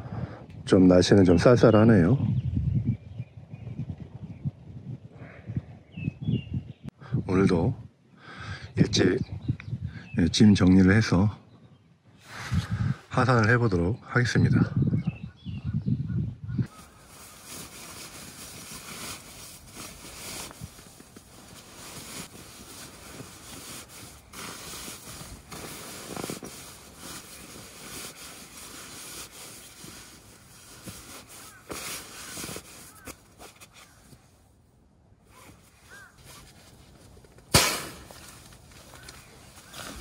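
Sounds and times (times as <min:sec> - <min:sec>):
nylon rustling: 0:16.7 - 0:34.2, 0:35.3 - 0:40.0
sharp loud knock: 0:37.5 - 0:38.1.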